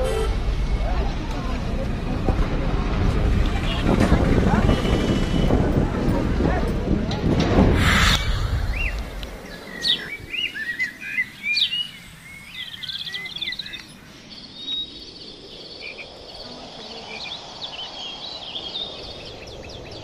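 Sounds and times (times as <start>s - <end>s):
songbirds chirping: 7.8s - 20.0s.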